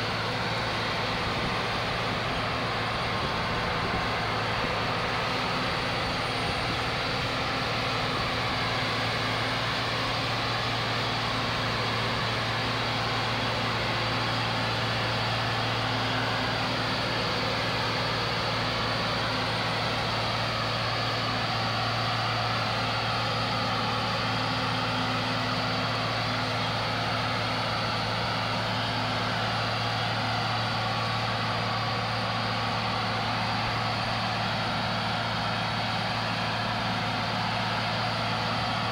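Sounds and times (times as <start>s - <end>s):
heavy diesel drone: 0.0s - 38.9s.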